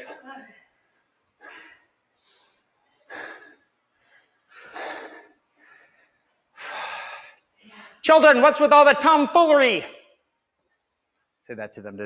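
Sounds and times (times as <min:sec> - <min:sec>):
person breathing hard: 0:01.4 - 0:08.0.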